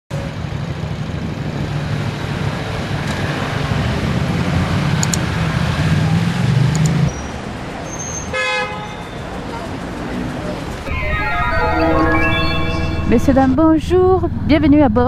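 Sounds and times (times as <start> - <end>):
motorcycles and cars engine rumble: 0.2 - 7.9.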